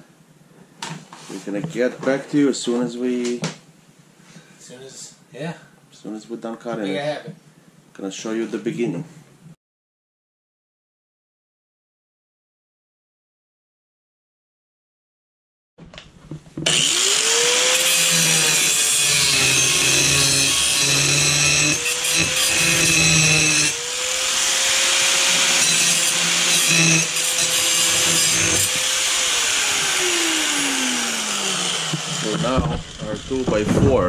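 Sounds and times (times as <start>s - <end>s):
angle grinder cutting metal: 16.6s - 33.8s.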